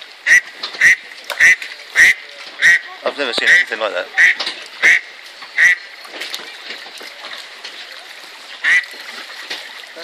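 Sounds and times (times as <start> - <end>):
duck quacking: 0.3 - 2.9, 3.5 - 5.0, 8.6 - 8.9.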